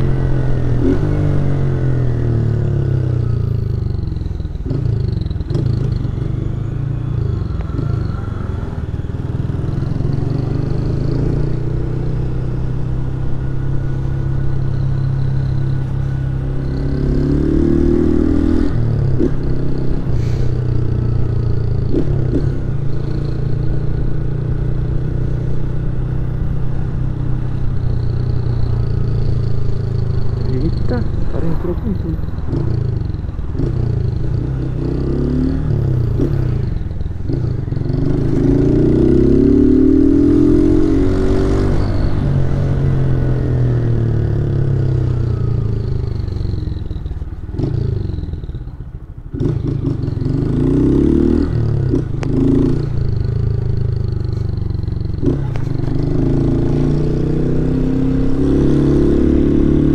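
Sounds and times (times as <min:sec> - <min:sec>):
motorcycle engine running: 0:18.9 - 0:34.8.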